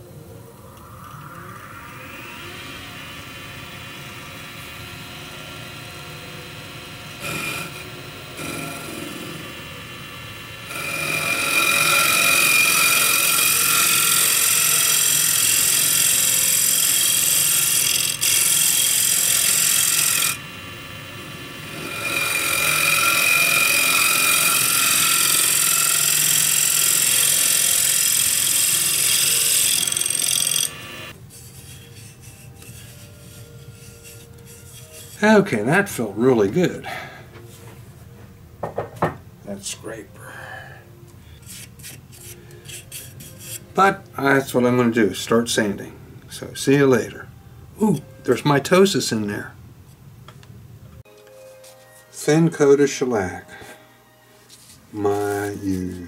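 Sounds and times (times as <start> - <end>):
wood lathe running: 0.8 - 35.4.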